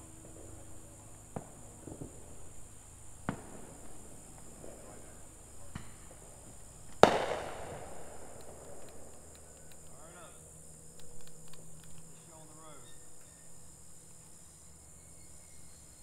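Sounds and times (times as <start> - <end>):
fireworks bangs: 0.0 - 10.3.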